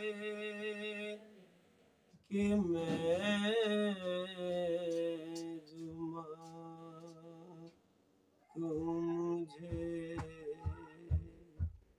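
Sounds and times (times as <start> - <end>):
man singing long held notes: 2.3 - 7.8, 8.5 - 11.7.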